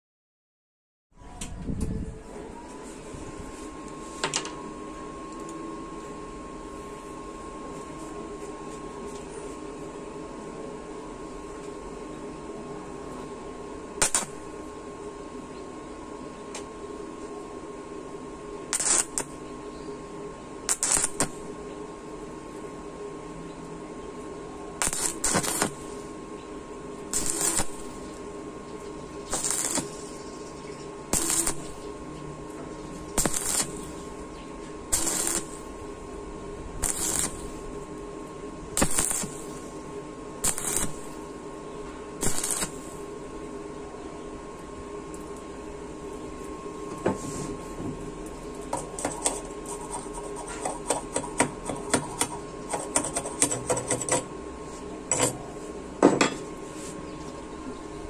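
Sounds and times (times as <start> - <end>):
welding arc crackling: 14.0 - 14.6, 18.7 - 19.4, 20.6 - 21.6, 24.8 - 26.1, 26.9 - 32.1, 32.8 - 34.3, 34.9 - 36.0, 36.8 - 38.0, 38.6 - 41.4, 42.2 - 43.2, 48.6 - 54.3.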